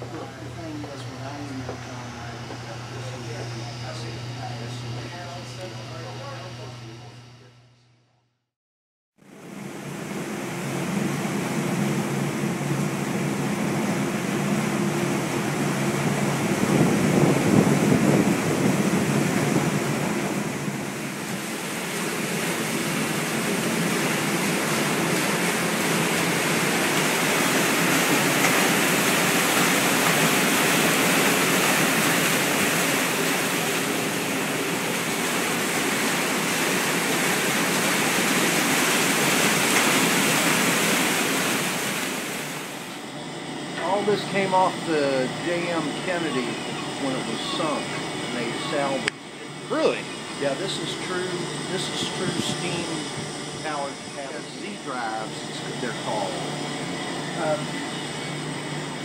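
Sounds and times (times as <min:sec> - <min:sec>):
low machinery hum: 0:00.0 - 0:08.2, 0:09.2 - 0:59.0
water rushing and splashing: 0:09.7 - 0:43.0.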